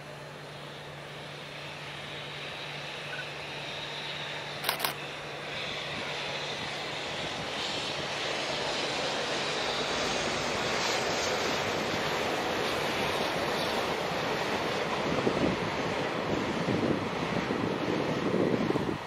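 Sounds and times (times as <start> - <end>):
freight train rumbling on steel bridge: 0.0 - 19.0
sharp double click: 4.6 - 5.0.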